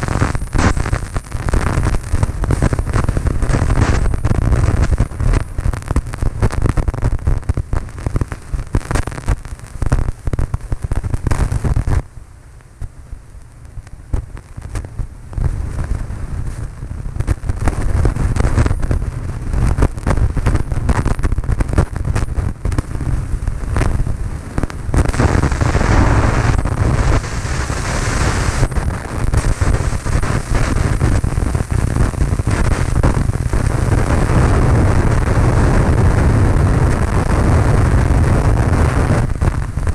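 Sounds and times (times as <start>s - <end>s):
wind buffeting microphone: 15.4s - 39.9s.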